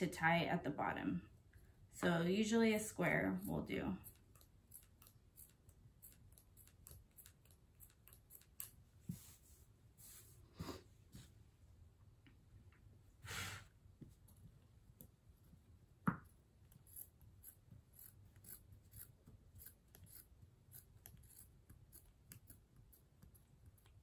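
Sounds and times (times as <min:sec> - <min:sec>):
scissors snipping fabric: 0:03.2 - 0:08.8, 0:16.7 - 0:24.0.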